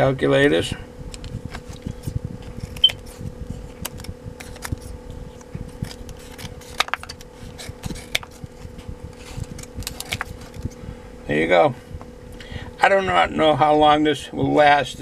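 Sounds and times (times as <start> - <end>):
small fan humming: 0.0 - 15.0.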